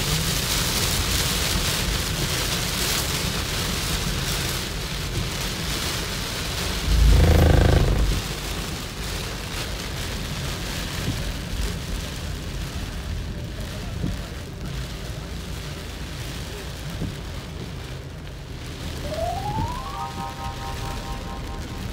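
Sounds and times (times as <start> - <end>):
heavy rain on car: 0.0 - 21.9
low pitched sound: 6.8 - 8.4, 19.0 - 21.9.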